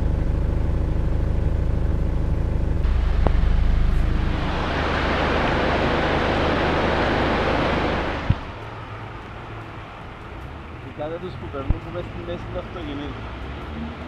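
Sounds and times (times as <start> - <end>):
low engine hum: 0.0 - 14.0
floodwater splashing around car: 2.8 - 14.0.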